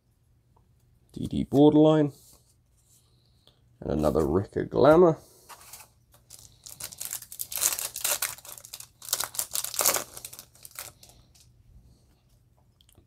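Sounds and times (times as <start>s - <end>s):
foil wrapper tearing and crinkling: 6.2s - 11.4s.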